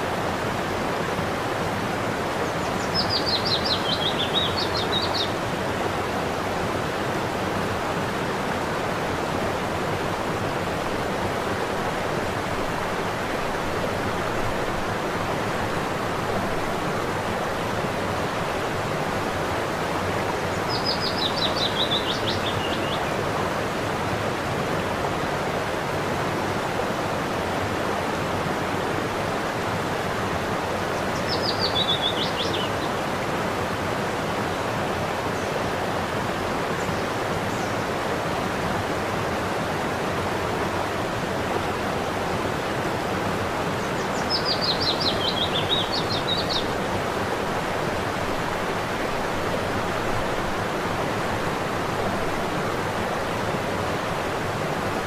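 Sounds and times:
waterfall rushing: 0:00.0 - 0:55.0
songbird singing: 0:02.4 - 0:05.4, 0:20.4 - 0:23.2, 0:31.0 - 0:33.0, 0:43.8 - 0:46.9.

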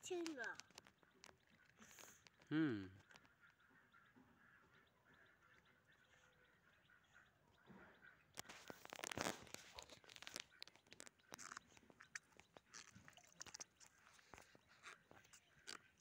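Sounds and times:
plastic bag crackling in water: 0:08.4 - 0:16.0.

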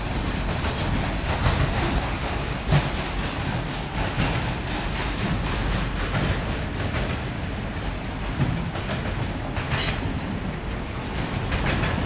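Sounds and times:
freight train wheels rumbling: 0:00.0 - 0:12.0
high-pitched wheel squeal: 0:09.8 - 0:10.1.

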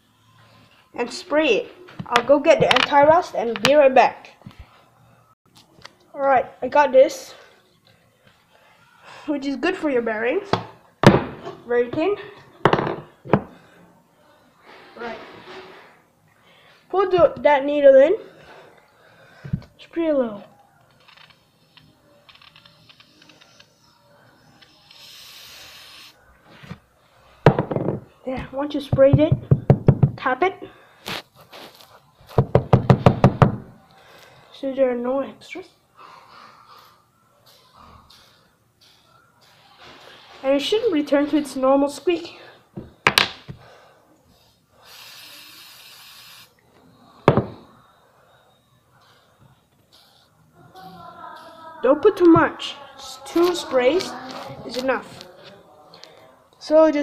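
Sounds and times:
aerosol spray can hissing: 0:24.9 - 0:26.2, 0:44.8 - 0:46.5.

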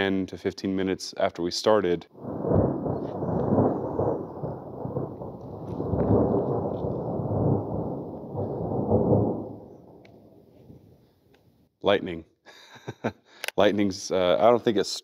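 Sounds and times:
rolling thunder: 0:02.2 - 0:11.0.

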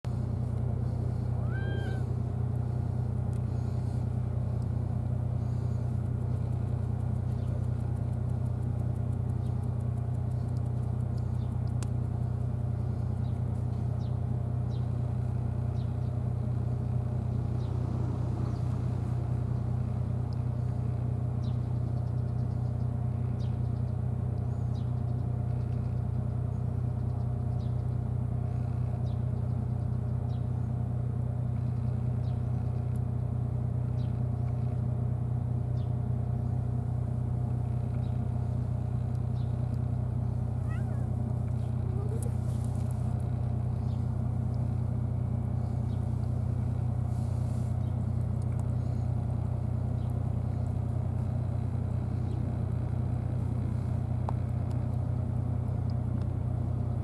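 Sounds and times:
engine idling: 0:00.0 - 0:57.0
cat meowing: 0:01.4 - 0:02.1, 0:40.6 - 0:41.2.

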